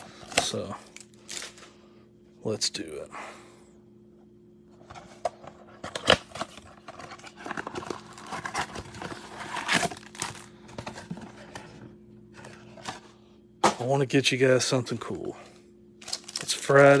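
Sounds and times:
cardboard and packaging rustling: 4.8 - 13.2, 16.0 - 17.0.

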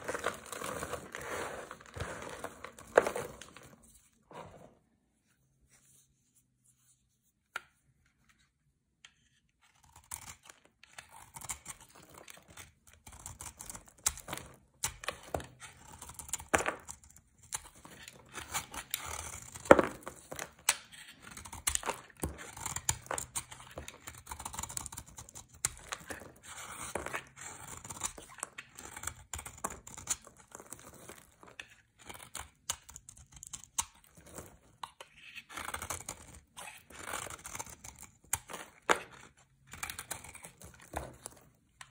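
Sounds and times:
metal blade scraping soap: 9.1 - 19.7, 20.3 - 41.9.

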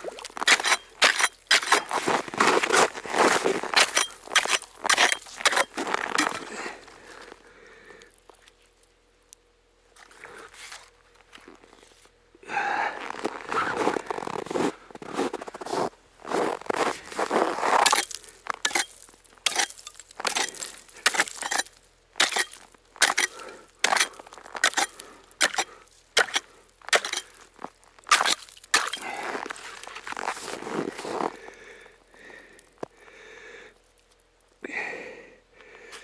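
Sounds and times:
ice crunching and scraping: 0.0 - 7.5, 9.9 - 12.1, 12.9 - 32.9
chopping strikes on ice: 0.1 - 1.9, 3.8 - 6.5, 17.8 - 27.4, 28.1 - 29.1.

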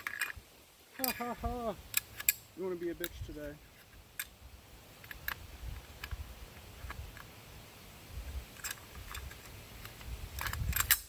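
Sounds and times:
rifle parts clicking: 1.9 - 2.4, 8.5 - 11.0.

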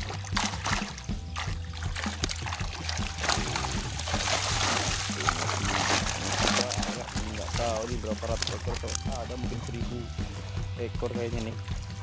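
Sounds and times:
fish splashing in water: 0.0 - 12.0.

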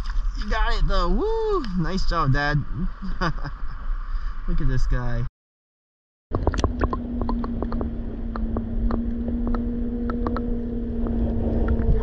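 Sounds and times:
underwater clicks and pops: 6.4 - 10.5
low underwater rumble: 6.4 - 12.0
steady low hum: 6.4 - 12.0.

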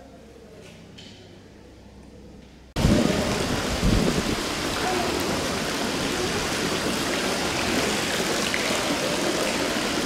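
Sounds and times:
rushing water: 2.8 - 10.0.

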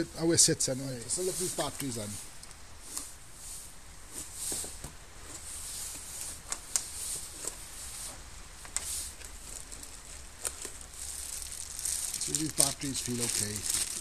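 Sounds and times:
cardboard rustling and scraping: 2.8 - 14.0.

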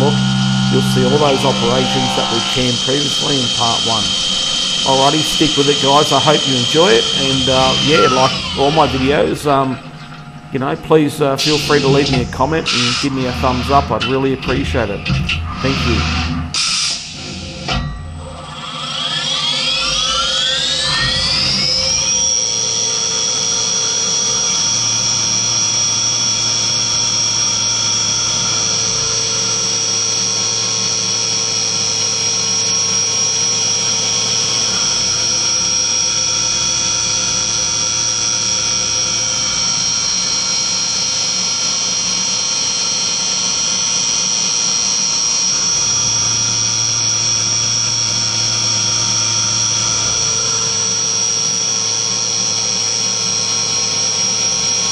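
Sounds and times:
lower hum: 0.0 - 16.0
milling machine spindle whine: 0.0 - 17.6, 18.2 - 54.9.

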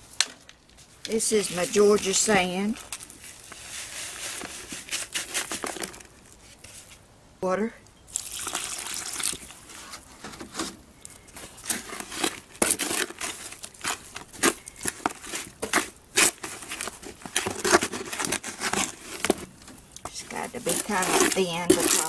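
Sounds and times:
trowel scraping wet cement: 1.1 - 5.9, 11.5 - 19.4, 20.1 - 22.0
water pouring into a plastic tub: 8.1 - 9.6.

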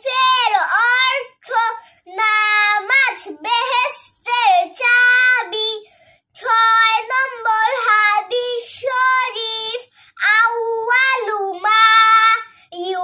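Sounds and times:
girl chanting melodically: 0.0 - 13.0.

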